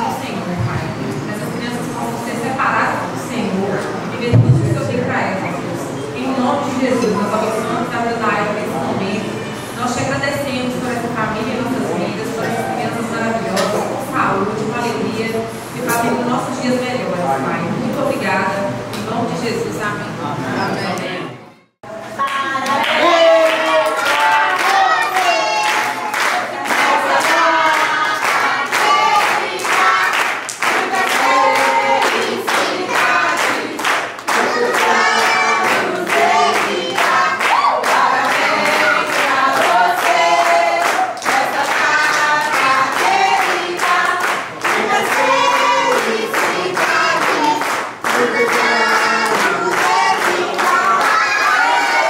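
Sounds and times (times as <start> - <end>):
crowd singing a birthday song: 20.5 - 52.0
rhythmic hand-clapping: 22.2 - 52.0.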